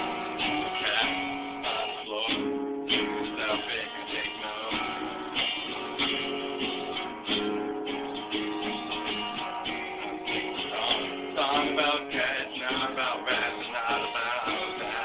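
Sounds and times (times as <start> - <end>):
acoustic guitar strumming: 0.0 - 15.0.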